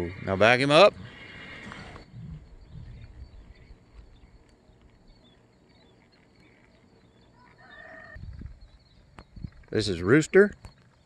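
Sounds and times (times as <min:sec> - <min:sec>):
distant birds chirping: 0:00.0 - 0:11.0
low rumble: 0:02.0 - 0:05.1.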